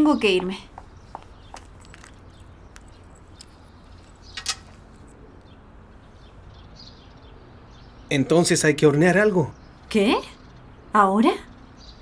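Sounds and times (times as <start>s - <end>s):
sharp rattling click: 4.1s - 4.8s.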